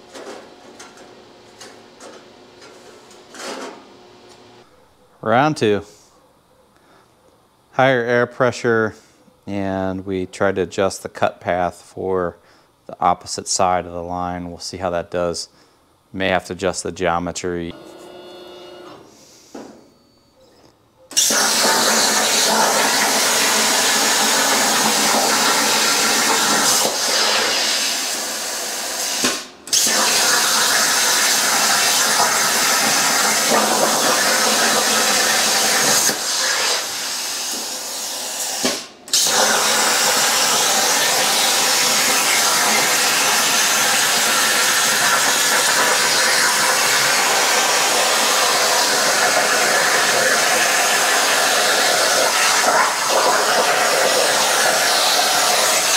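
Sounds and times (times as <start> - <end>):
plasma cutter hissing: 21.2 - 55.9.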